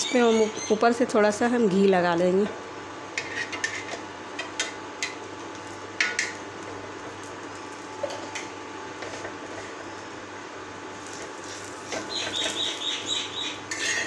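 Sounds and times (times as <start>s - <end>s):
spoon tapping and scraping griddle: 3.2s - 6.4s, 8.0s - 9.8s, 11.0s - 12.8s, 13.5s - 14.0s.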